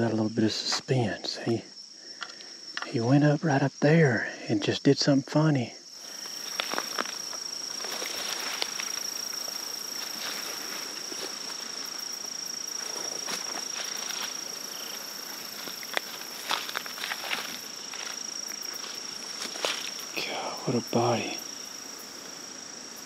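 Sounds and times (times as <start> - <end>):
insects droning: 0.0 - 23.0
footsteps rustling through undergrowth: 6.0 - 20.2.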